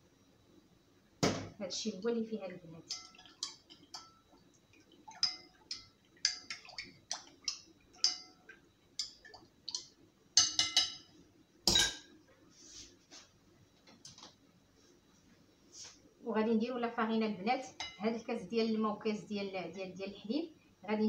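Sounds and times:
spoon clinking in glass bowl: 2.9s - 4.2s, 5.2s - 6.7s, 7.4s - 8.4s, 10.4s - 11.1s.

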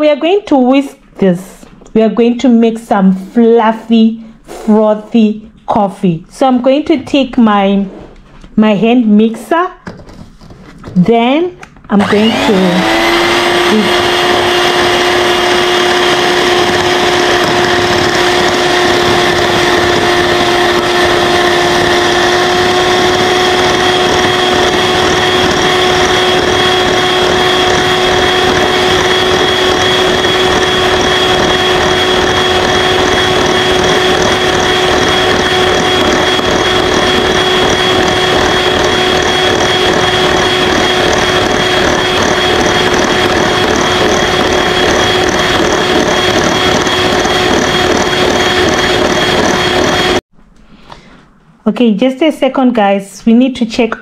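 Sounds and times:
electric hand mixer running: 11.9s - 50.3s.

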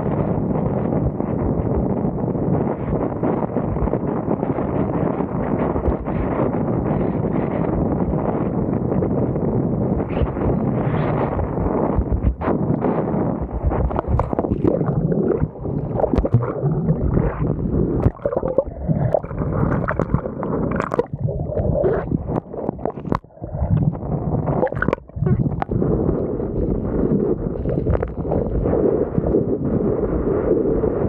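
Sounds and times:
wind buffeting microphone: 0.0s - 31.0s
seawater splashing and gurgling: 13.4s - 28.8s.

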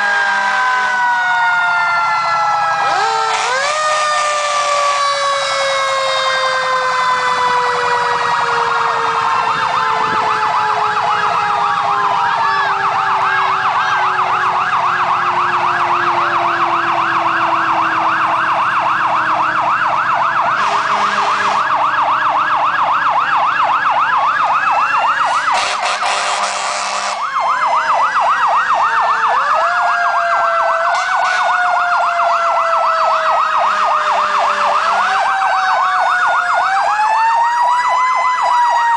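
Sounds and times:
fire engine sirens: 0.0s - 38.9s.

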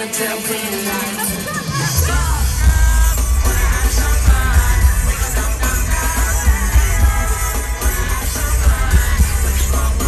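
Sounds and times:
live pop concert music: 0.0s - 10.0s
heavy pulsing bass beat: 2.0s - 10.0s.

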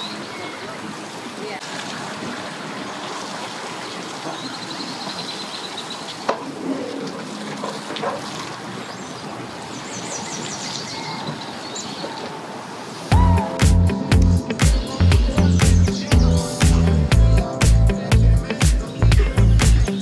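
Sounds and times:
outdoor background noise: 0.0s - 13.5s
small birds chirping: 2.8s - 6.4s, 8.4s - 12.4s, 14.4s - 17.8s, 18.7s - 20.0s.

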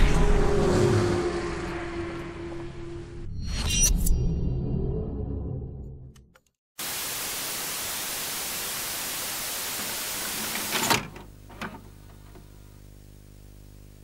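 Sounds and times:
click: 6.1s - 6.6s
tv static hiss: 6.8s - 14.0s
cassette loading clunk: 10.3s - 12.4s.

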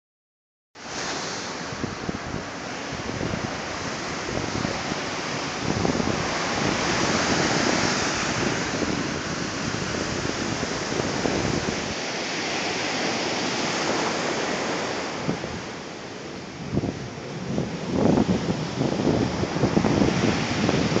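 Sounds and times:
surf washing onto beach: 0.8s - 21.0s
wind buffeting microphone: 1.4s - 21.0s.

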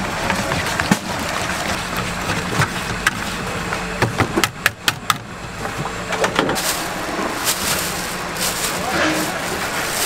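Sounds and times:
steady low hum: 0.0s - 10.0s
plastic bag rustling: 6.5s - 10.0s.

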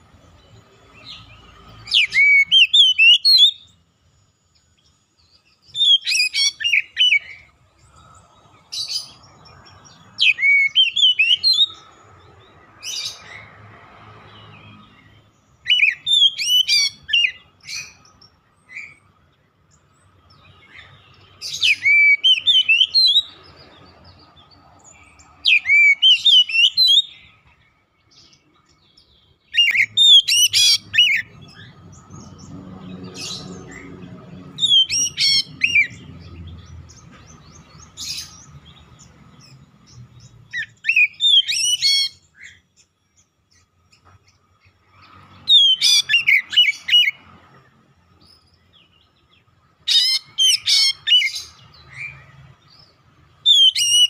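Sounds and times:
bird singing whistled phrases: 1.9s - 3.8s, 5.7s - 7.5s, 10.2s - 11.8s, 15.6s - 18.0s, 21.5s - 23.4s, 25.5s - 27.3s, 34.6s - 36.0s, 40.5s - 42.6s, 45.5s - 47.2s, 53.5s - 54.0s.

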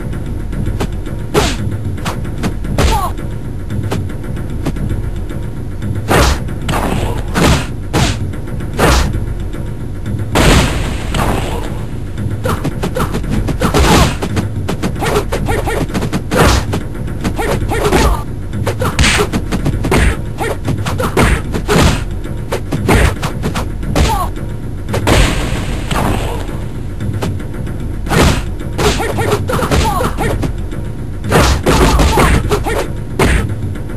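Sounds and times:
background music: 0.0s - 33.9s
cartoon punch impacts: 6.1s - 8.2s.

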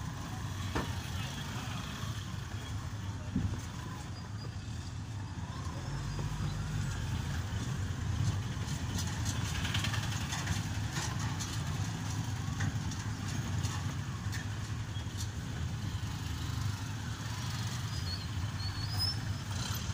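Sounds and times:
motorcycles: 0.0s - 19.9s
vehicle engines rumbling: 0.0s - 19.9s
clatter and clicks: 8.2s - 14.8s.

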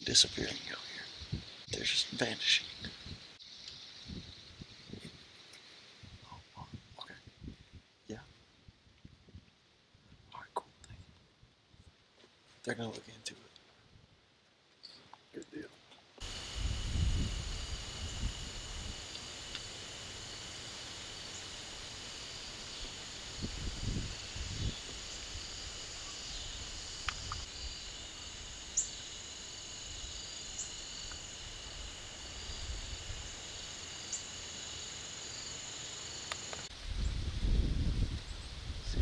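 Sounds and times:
crickets and insects trilling: 0.0s - 7.1s, 16.2s - 39.0s.

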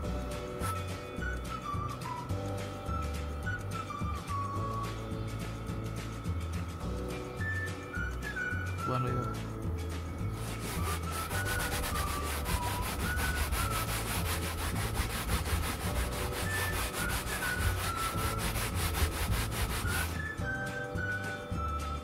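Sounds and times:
cloth rubbing fabric: 10.3s - 20.4s.

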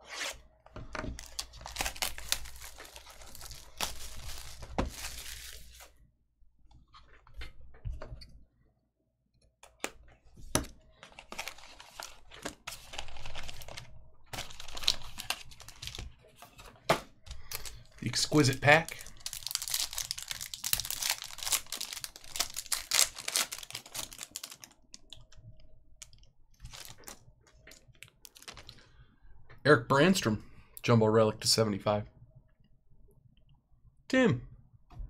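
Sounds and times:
foil pack crinkling: 1.2s - 5.9s, 11.2s - 16.0s, 17.4s - 25.2s, 26.6s - 27.2s, 28.3s - 28.8s
plastic wrap tearing and crinkling: 1.2s - 5.9s, 11.2s - 16.0s, 17.6s - 25.2s, 26.6s - 27.2s, 28.2s - 28.8s.

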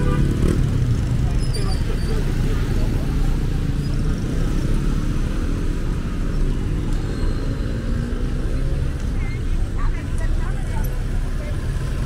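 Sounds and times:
scooters and cars passing: 0.0s - 12.0s.

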